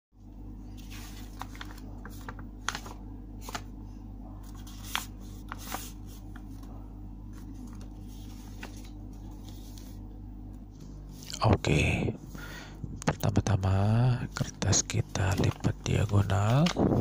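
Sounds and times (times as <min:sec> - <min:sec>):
steady low hum: 0:00.2 - 0:17.0
paper rustling and crinkling: 0:00.7 - 0:03.7, 0:04.4 - 0:10.0, 0:14.9 - 0:17.0.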